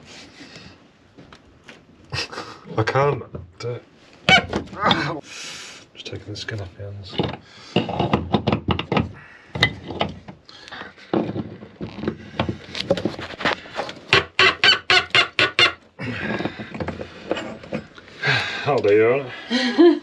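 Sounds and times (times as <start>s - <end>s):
threads squeaking and creaking: 13.8s - 17.9s.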